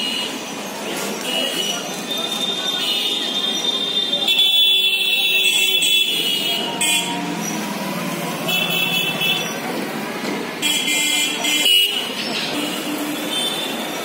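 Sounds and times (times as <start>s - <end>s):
vehicle engine running: 6.6s - 10.6s.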